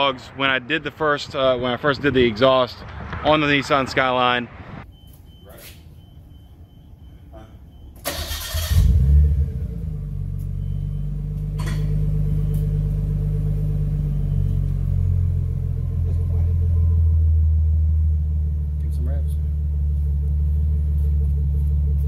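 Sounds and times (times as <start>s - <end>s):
car engine starting and idling: 8.0s - 22.0s.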